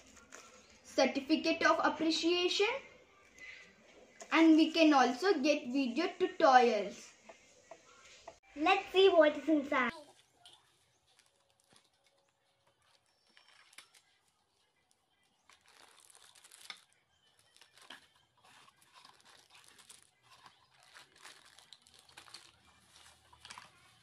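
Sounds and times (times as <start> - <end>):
plastic packaging crinkling: 10.1 - 24.0.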